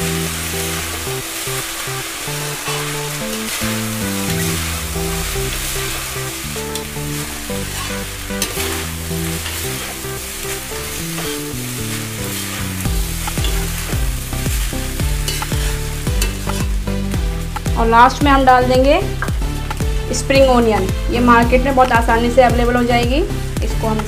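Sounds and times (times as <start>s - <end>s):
rice sizzling in a wok: 0.0s - 18.2s
background music: 0.0s - 24.0s
metal spatula scraping a wok: 0.2s - 16.7s.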